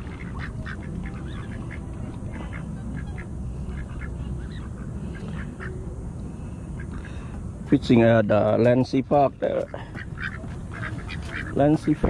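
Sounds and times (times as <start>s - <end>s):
ducks quacking: 0.0s - 5.8s, 8.6s - 12.0s
steady low rumble: 0.0s - 12.0s.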